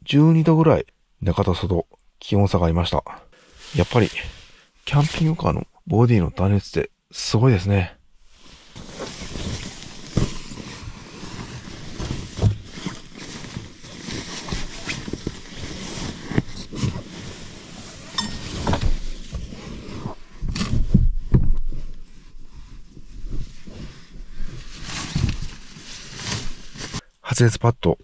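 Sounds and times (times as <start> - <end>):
sleeping bag fabric rustling: 8.3 - 21.0, 21.8 - 27.0
soft thumps and knocks: 11.9 - 13.0, 20.4 - 22.0.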